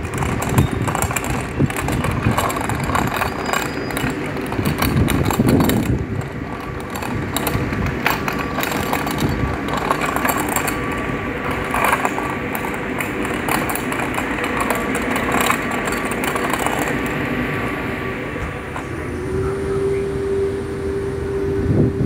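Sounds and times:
electric train equipment humming: 0:00.0 - 0:22.0
faint high whine: 0:17.4 - 0:22.0.

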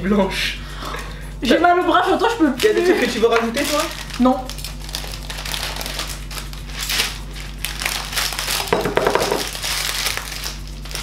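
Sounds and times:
plastic bag crinkling: 0:02.6 - 0:11.0
foam beads shifting and crunching: 0:03.5 - 0:11.0.

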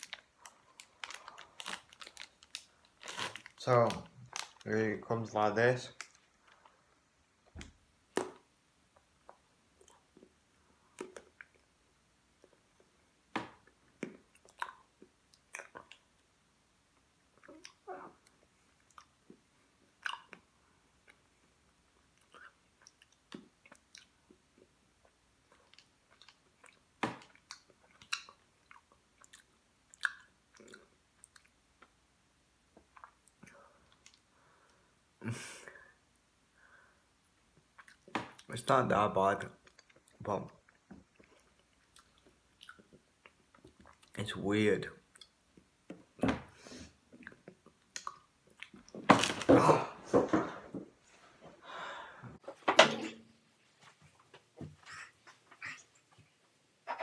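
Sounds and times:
packet crackling in fingers: 0:00.0 - 0:04.7
person chewing food: 0:13.6 - 0:16.3, 0:17.3 - 0:21.3, 0:22.0 - 0:32.0, 0:32.8 - 0:34.8, 0:37.6 - 0:38.5, 0:39.6 - 0:44.1, 0:47.0 - 0:48.9.

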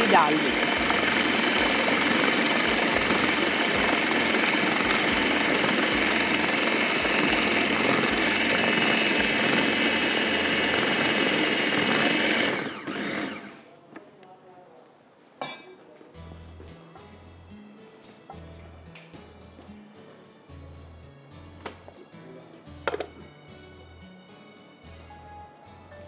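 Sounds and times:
food processor chopping bread: 0:00.0 - 0:13.6
motor winding down whine: 0:00.0 - 0:13.6.

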